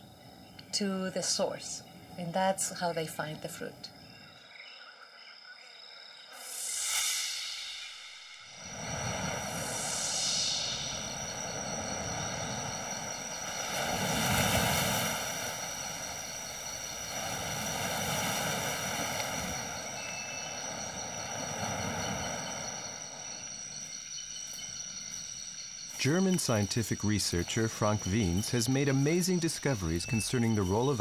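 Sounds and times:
steady high-pitched drone: 6.1 - 31.0
surf washing onto beach: 8.6 - 23.2.

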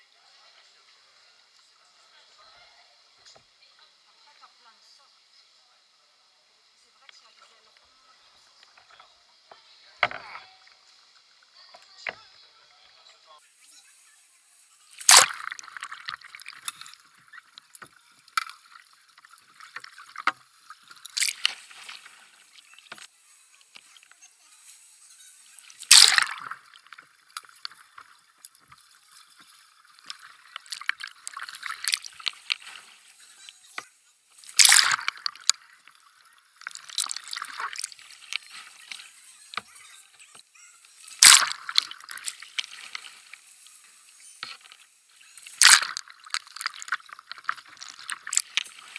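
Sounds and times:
water splashing around a kayak: 14.6 - 39.8, 40.4 - 48.9
water trickling: 14.8 - 24.2, 25.0 - 48.9.

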